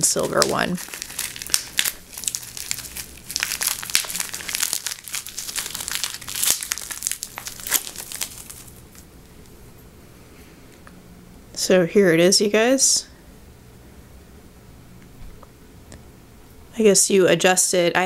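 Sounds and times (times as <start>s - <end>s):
plastic wrap crinkling: 0.0s - 9.6s.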